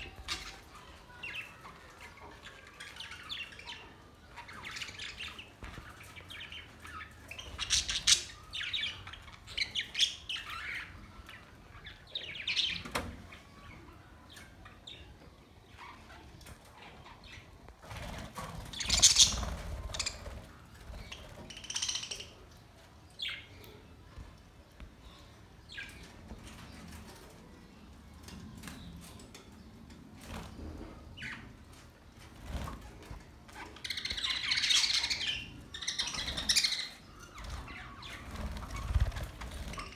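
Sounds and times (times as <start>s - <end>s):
budgerigars chirping and chattering: 0.0s - 13.6s, 14.7s - 22.4s, 32.5s - 39.9s
wings flapping: 37.4s - 39.9s.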